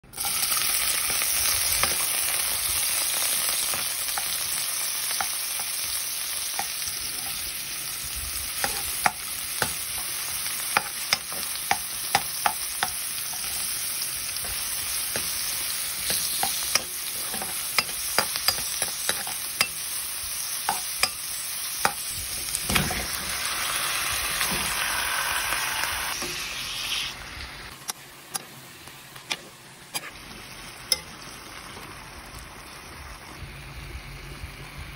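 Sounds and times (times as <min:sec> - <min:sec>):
onion sizzling in hot oil: 0:00.0 - 0:34.9
spatula scraping a pan: 0:08.6 - 0:19.8, 0:29.9 - 0:30.2.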